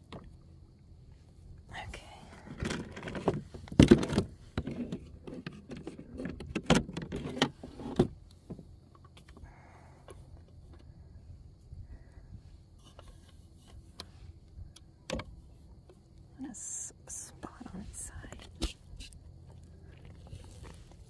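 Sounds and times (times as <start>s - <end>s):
knocks and clatters in boat: 2.5s - 9.0s.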